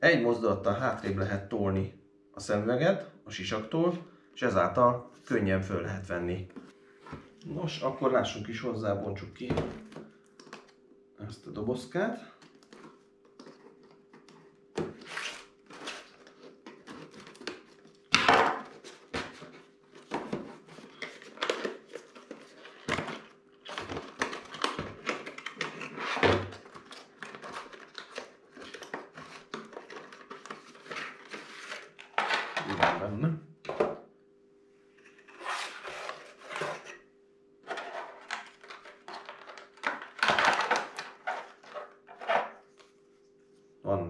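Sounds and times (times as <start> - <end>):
card and plastic tearing and crinkling: 12.4 - 32.9, 35.1 - 37.0, 37.6 - 42.9.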